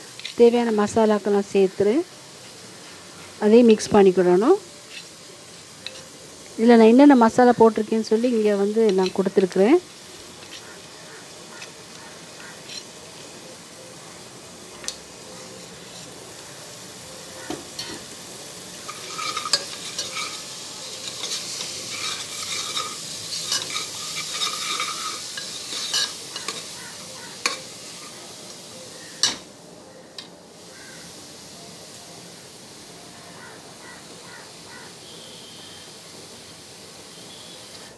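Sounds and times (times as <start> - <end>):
light sizzle: 0.0 - 37.9
metal ladle scraping pot: 18.9 - 26.8.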